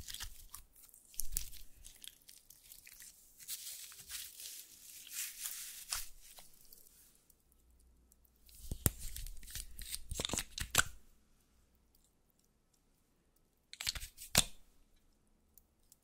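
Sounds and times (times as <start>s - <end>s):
slime being squished: 0.0s - 6.9s
slime crackling and tearing: 0.0s - 6.9s.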